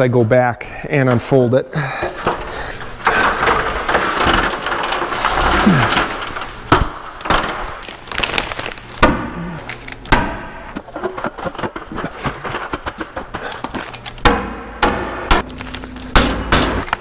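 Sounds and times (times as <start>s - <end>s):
plastic sheeting rustling: 7.8s - 9.0s.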